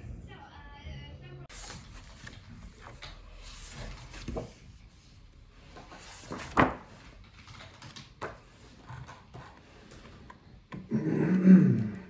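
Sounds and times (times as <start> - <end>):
book pages turning: 1.5 - 10.7.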